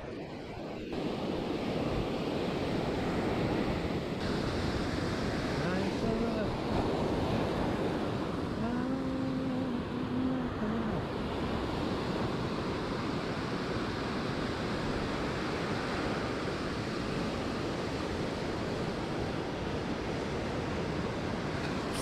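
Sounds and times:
ocean surf breaking: 0:00.0 - 0:22.0
wind on microphone: 0:00.0 - 0:22.0.

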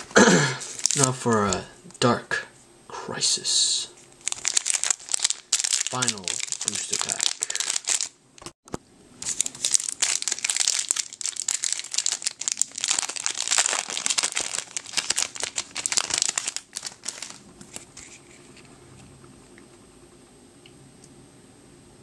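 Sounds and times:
foil wrapper crinkling and tearing: 0:00.6 - 0:01.6, 0:04.2 - 0:08.6, 0:09.2 - 0:18.5.

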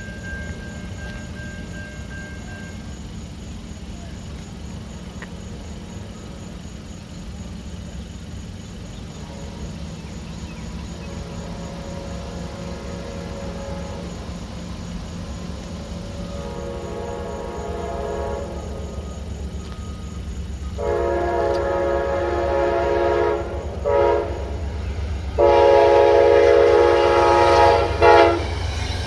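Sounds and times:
train rumbling: 0:00.0 - 0:29.0
train horn: 0:09.1 - 0:14.4, 0:15.8 - 0:20.0, 0:20.7 - 0:29.0.

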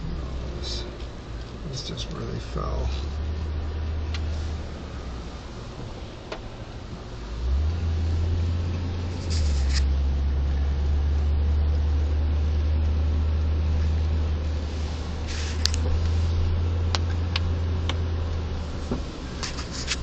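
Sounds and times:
car engine and road rumble: 0:00.0 - 0:20.0
brief hiss: 0:14.6 - 0:16.4.

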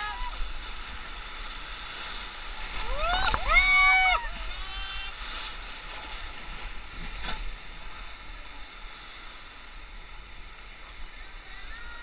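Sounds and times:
whitewater rapids rushing: 0:00.0 - 0:06.8.

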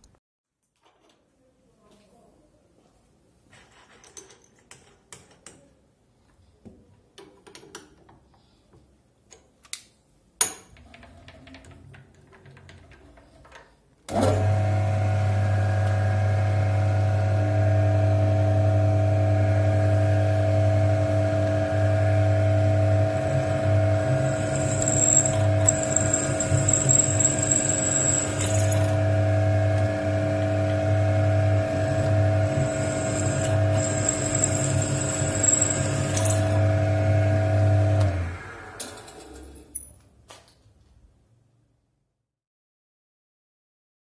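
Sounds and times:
drill press motor running: 0:14.1 - 0:39.6
drill bit whining into metal: 0:23.0 - 0:29.2, 0:31.6 - 0:36.7.

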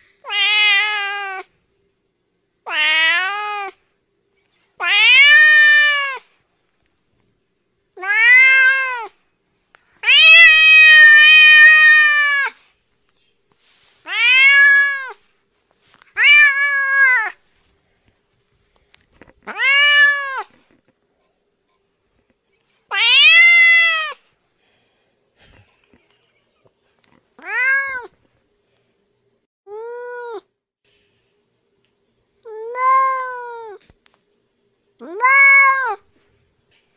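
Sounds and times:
cat meowing: 0:00.3 - 0:01.5, 0:02.7 - 0:03.8, 0:04.8 - 0:06.2, 0:08.0 - 0:09.1, 0:10.0 - 0:12.6, 0:14.1 - 0:15.2, 0:16.2 - 0:17.4, 0:19.5 - 0:20.6, 0:22.9 - 0:24.2, 0:27.4 - 0:28.1, 0:35.0 - 0:36.0.

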